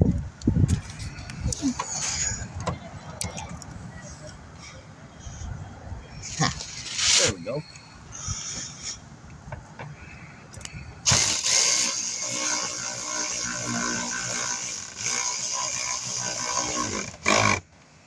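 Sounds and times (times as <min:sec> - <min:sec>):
power tool driving a bolt: 0:11.0 - 0:17.7.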